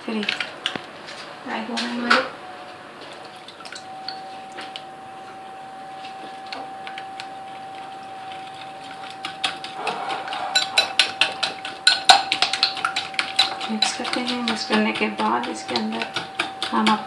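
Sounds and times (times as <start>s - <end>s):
faint steady hum: 0.0s - 17.0s
utensil clattering against bowl: 8.9s - 17.0s.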